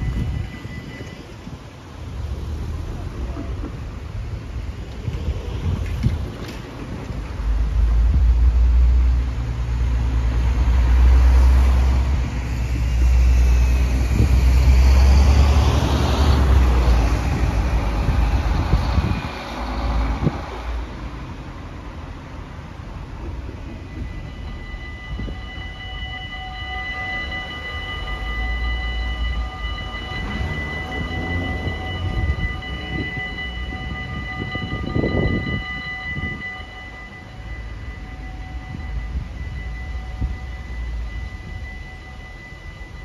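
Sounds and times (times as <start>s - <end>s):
level crossing bells ringing: 0.0s - 1.8s, 23.7s - 43.0s
bus and cars driving past: 0.0s - 43.0s.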